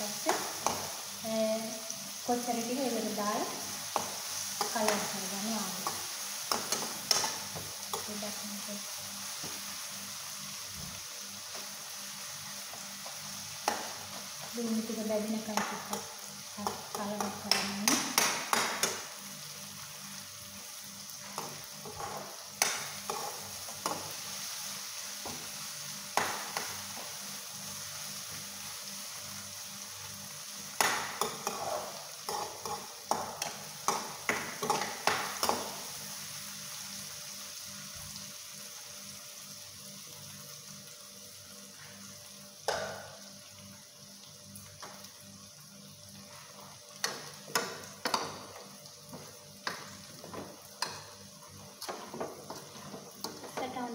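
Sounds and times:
onions sizzling in hot oil: 0.0s - 53.9s
metal spoon scraping pan: 31.2s - 32.8s.

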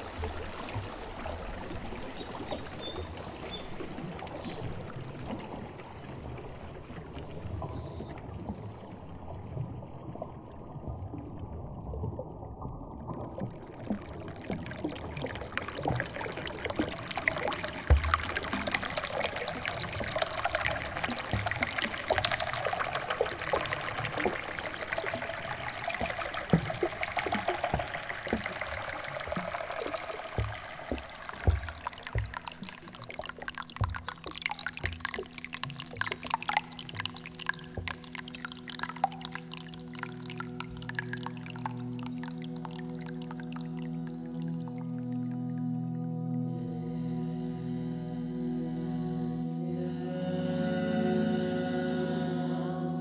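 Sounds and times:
stream trickling and splashing: 0.0s - 45.8s.

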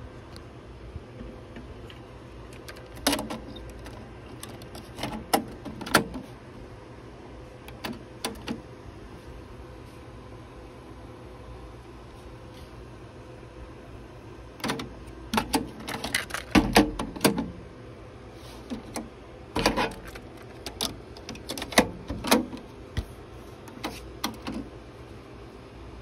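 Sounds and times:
cassette door opening and shutting: 2.5s - 6.4s, 7.6s - 8.7s, 14.5s - 17.6s, 18.6s - 22.7s, 23.6s - 24.8s.

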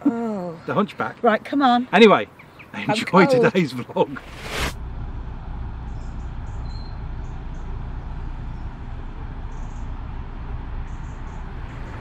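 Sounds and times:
diesel engine rumble: 2.4s - 12.0s
faint high chirps: 5.9s - 7.1s.

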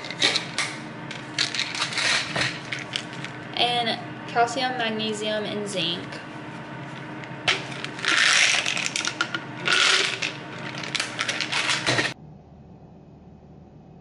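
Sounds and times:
tablets rattling in plastic bottle: 0.0s - 3.4s, 7.5s - 12.2s.

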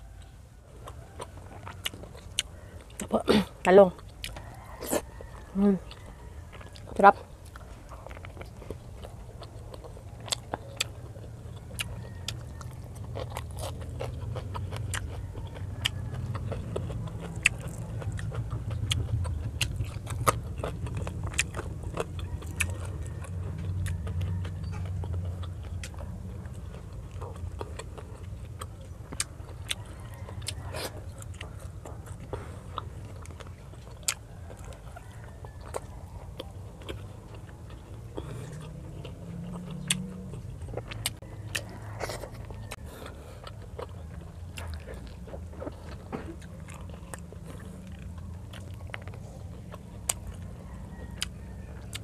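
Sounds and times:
close-miked chewing: 0.0s - 52.0s
low steady rumble: 0.0s - 52.0s.

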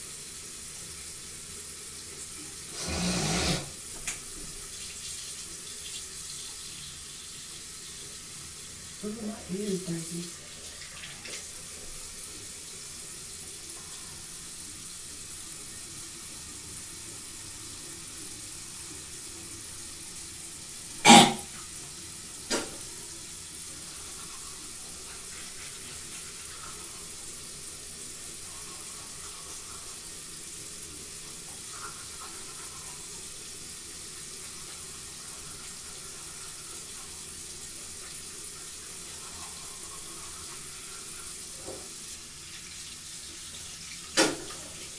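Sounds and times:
tap running into sink: 22.4s - 22.9s, 44.1s - 44.8s.

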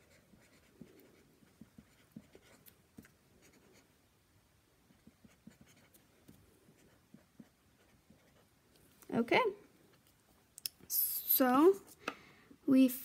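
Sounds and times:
marker scratching on paper: 0.0s - 3.9s, 4.9s - 8.6s.

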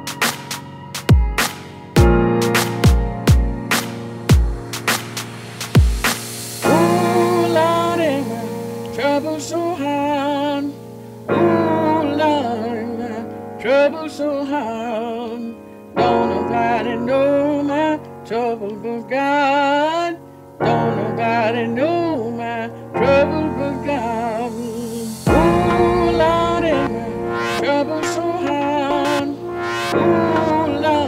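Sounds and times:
sustained keyboard chords: 0.0s - 19.4s, 20.6s - 31.0s
person singing: 6.4s - 31.0s.

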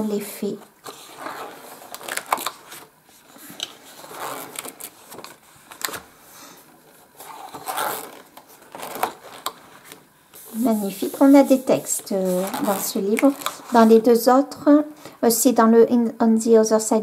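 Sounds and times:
paper pages rustling and flicking: 0.8s - 6.2s, 7.0s - 14.2s.

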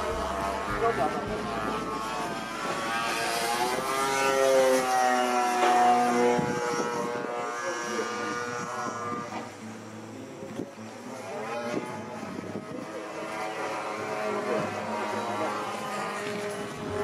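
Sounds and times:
model plane engine in flight: 0.0s - 17.0s.

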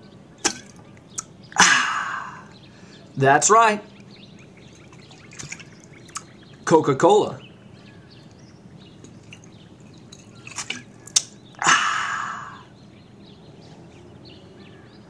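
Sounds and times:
man swallowing: 0.4s - 2.6s, 10.6s - 12.7s.

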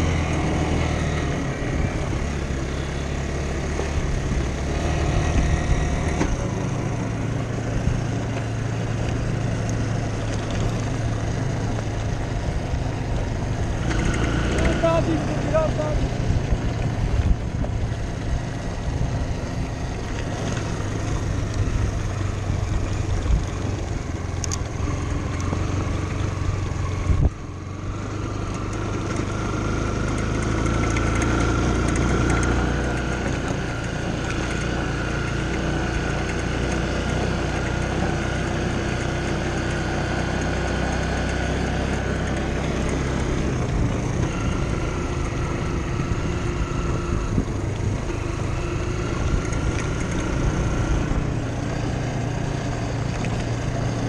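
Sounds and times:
dirt bike engine running: 0.0s - 54.0s.

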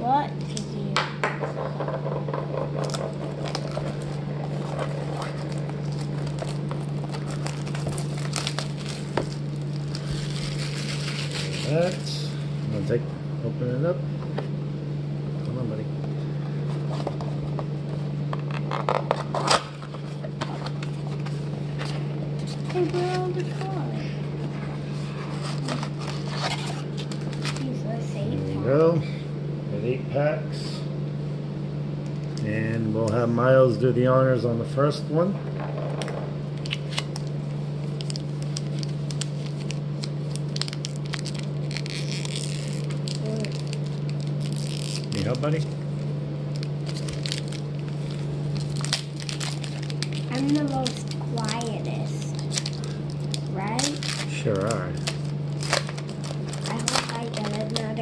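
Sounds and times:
steady low hum: 0.0s - 58.0s
packaging tearing and crinkling: 2.7s - 12.2s, 18.4s - 23.6s, 25.4s - 27.7s, 35.8s - 45.6s, 46.5s - 58.0s.

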